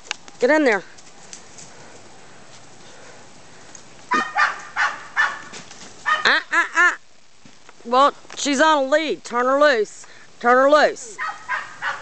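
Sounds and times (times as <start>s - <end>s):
loud animal calls: 4.1s - 6.8s.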